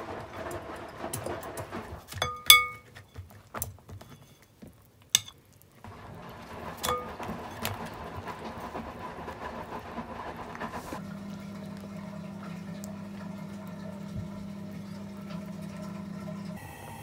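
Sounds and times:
hard objects clinking: 1.3 - 5.8.

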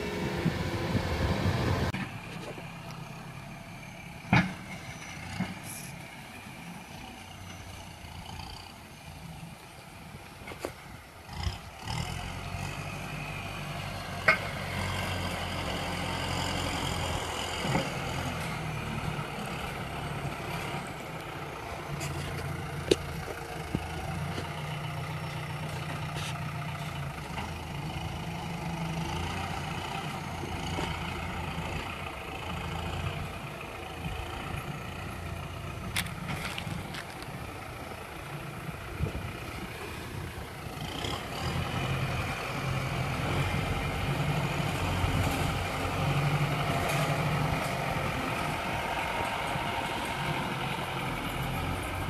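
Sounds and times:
diesel tractor engine running: 0.0 - 52.0
dozer blade pushing soil: 10.5 - 31.6, 35.8 - 37.4, 40.9 - 52.0.

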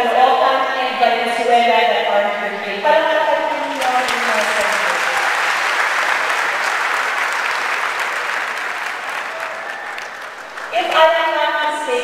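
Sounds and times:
audience applauding: 3.4 - 11.2.

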